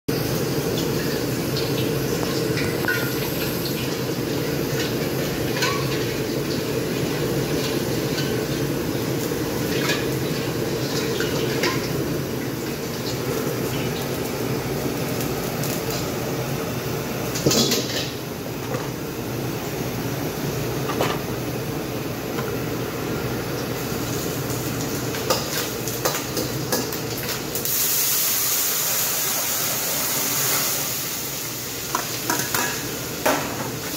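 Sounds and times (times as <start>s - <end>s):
running tap water: 0.1s - 18.2s
frying hiss in a wok: 0.1s - 33.9s
gas wok burners roaring: 0.1s - 33.9s
metal ladles and pans clanking: 2.6s - 3.2s, 4.7s - 6.2s, 9.6s - 10.2s, 17.4s - 18.9s, 31.9s - 33.6s.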